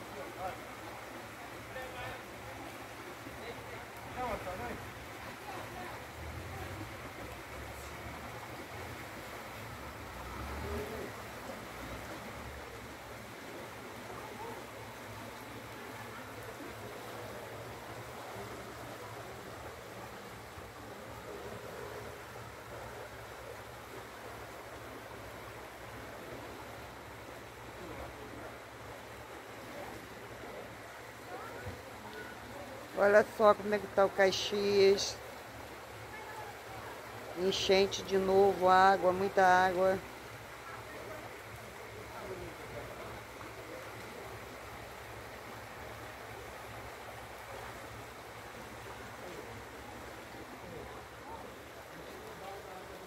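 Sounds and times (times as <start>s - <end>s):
floodwater rushing: 0.0s - 53.0s.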